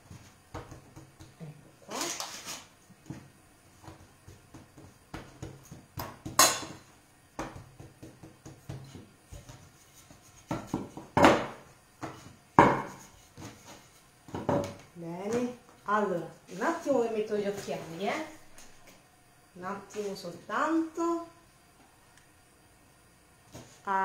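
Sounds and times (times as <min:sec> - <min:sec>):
rolling pin knocking on wooden board: 0:00.5 - 0:01.4, 0:03.1 - 0:06.5, 0:07.4 - 0:09.6, 0:10.4 - 0:13.6, 0:14.3 - 0:14.8.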